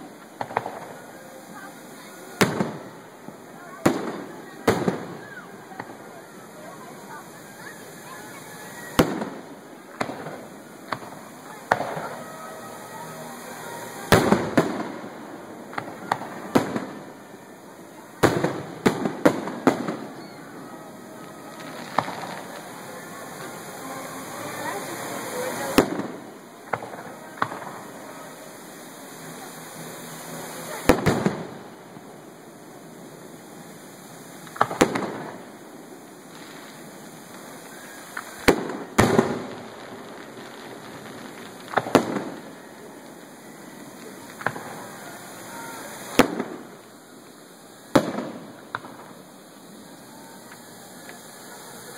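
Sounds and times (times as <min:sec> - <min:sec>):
firework shells booming: 0:00.4 - 0:01.0, 0:02.4 - 0:06.7, 0:08.9 - 0:12.3, 0:14.0 - 0:17.2, 0:18.2 - 0:20.6, 0:21.5 - 0:22.9, 0:25.4 - 0:29.4, 0:30.7 - 0:32.1, 0:34.4 - 0:35.6, 0:36.2 - 0:46.8, 0:47.8 - 0:49.4.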